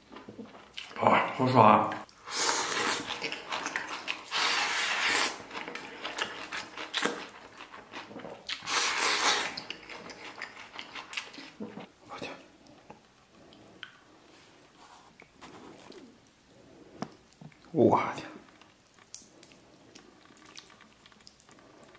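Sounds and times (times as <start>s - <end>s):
wet chewing and smacking: 0.0s - 1.0s, 2.8s - 12.0s, 18.4s - 21.9s
person slurping food: 2.2s - 7.3s, 8.0s - 11.8s.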